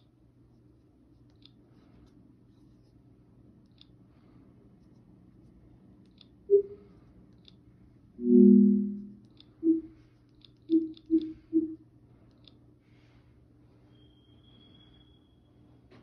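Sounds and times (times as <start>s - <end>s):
soft pitched blips: 6.5s - 6.9s, 8.2s - 10.0s, 10.7s - 11.8s
low two-note tone: 8.2s - 9.9s.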